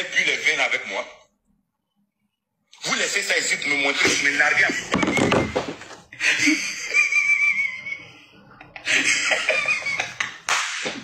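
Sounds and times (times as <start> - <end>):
man laughing hard: 8.9 - 10.5.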